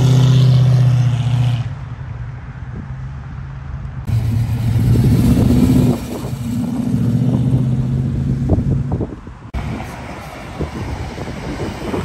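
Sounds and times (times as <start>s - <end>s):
car engine pulling away: 4.1s - 10.1s.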